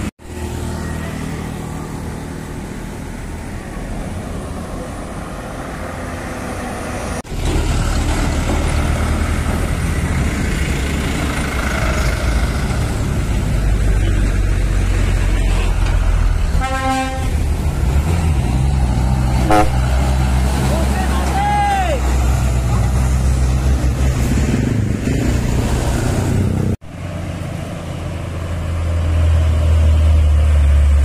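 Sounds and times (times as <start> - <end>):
diesel trucks passing: 0.0 - 31.0
short horn toot: 16.6 - 17.3, 19.4 - 19.8.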